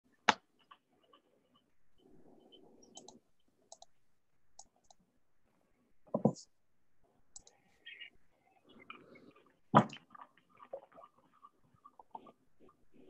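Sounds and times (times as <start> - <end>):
faint clicking: 2.8 - 5.0, 7.3 - 7.7.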